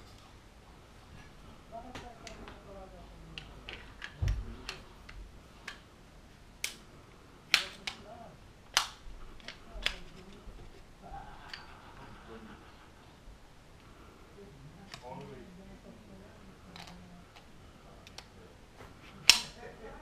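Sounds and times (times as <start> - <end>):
pistol metal clicks: 6.6 - 6.8, 8.7 - 10.0, 19.2 - 19.6.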